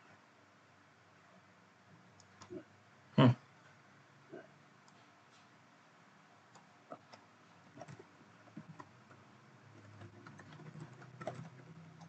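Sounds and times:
keyboard keystrokes: 6.5 - 12.0.

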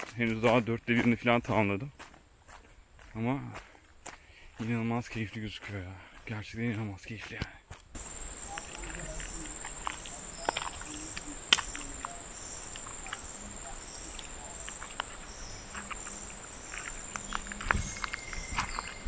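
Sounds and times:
footsteps on leafy dirt trail: 0.0 - 19.0
insects shrilling: 8.0 - 19.0
soft pulsing insect call: 8.0 - 19.0.

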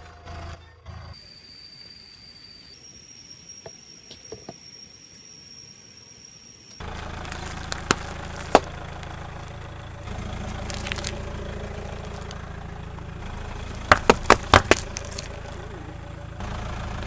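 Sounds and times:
plastic packs crackling under tyre: 6.8 - 12.4, 13.6 - 15.8
car engine idling: 6.8 - 17.0
drink cartons crushed under tyre: 6.9 - 9.6, 10.4 - 11.3, 13.7 - 15.6.

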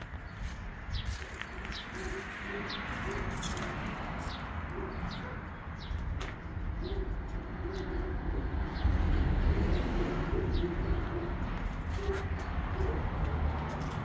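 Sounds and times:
small birds chirping: 0.0 - 8.1
pigeons cooing: 1.1 - 6.0, 6.6 - 13.9.

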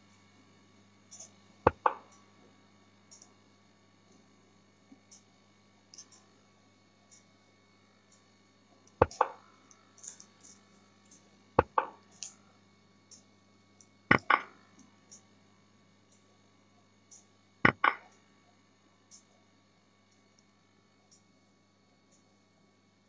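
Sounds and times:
mouse clicks: 9.0 - 9.4, 14.1 - 14.5.

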